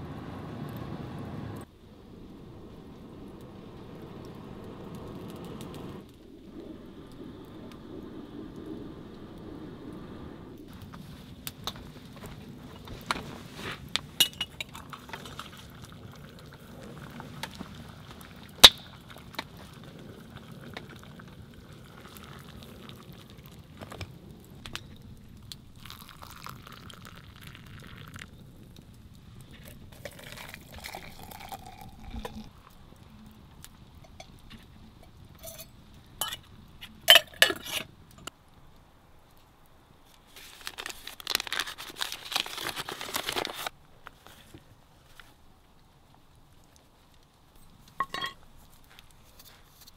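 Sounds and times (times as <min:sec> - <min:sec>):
wood fire crackling and popping: 0:00.0 - 0:49.9
water pouring into cup: 0:25.7 - 0:28.3, 0:30.0 - 0:32.5
plastic packet crinkling: 0:40.4 - 0:43.7.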